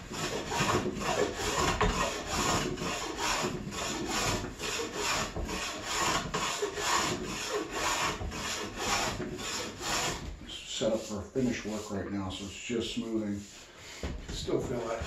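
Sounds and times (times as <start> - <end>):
hand tool rasping on wood: 0.0 - 12.0, 13.0 - 15.0.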